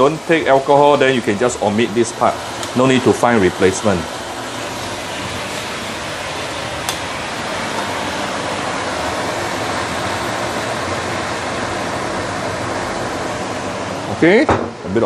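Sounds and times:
leaves sizzling in a wok: 0.0s - 14.2s
cooker hood fan running: 0.0s - 15.0s.

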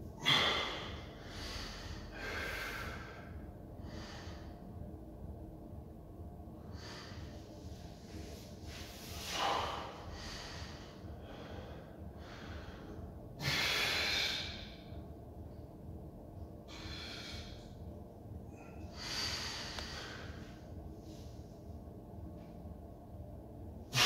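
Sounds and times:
man breathing hard: 0.2s - 4.9s, 6.6s - 15.6s, 16.6s - 21.8s.

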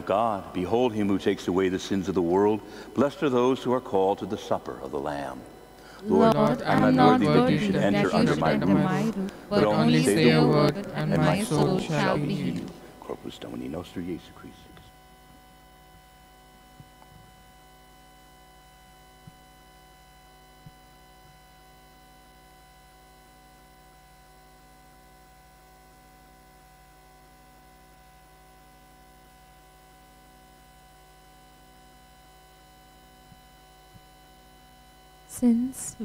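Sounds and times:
faint electrical hum: 0.0s - 36.0s.

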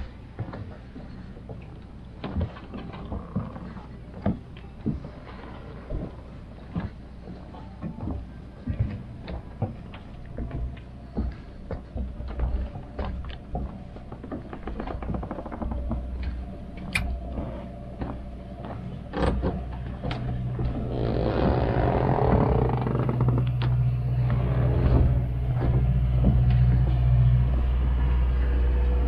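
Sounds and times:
engine humming: 8.6s - 29.0s.

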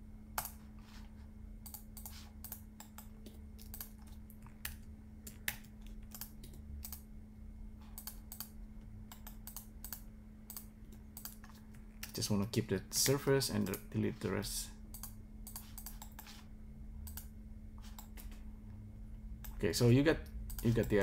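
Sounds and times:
faint low hum: 0.0s - 21.0s
keyboard and mouse clicks: 1.6s - 7.0s, 7.9s - 12.2s, 14.9s - 16.4s.

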